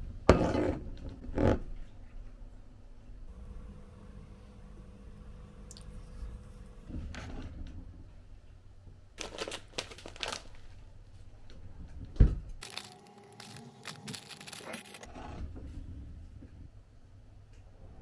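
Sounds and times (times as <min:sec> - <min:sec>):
plastic bag crinkling: 0:09.2 - 0:10.8, 0:12.6 - 0:15.1.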